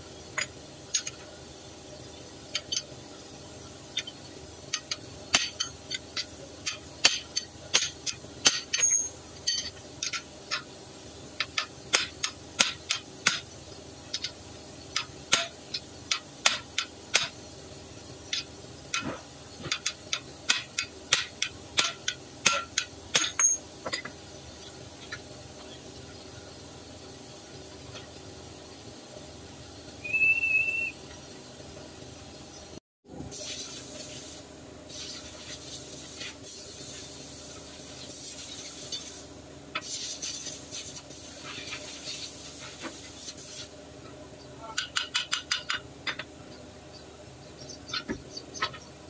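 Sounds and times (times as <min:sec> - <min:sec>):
tools set down on concrete: 0:19.0 - 0:24.2.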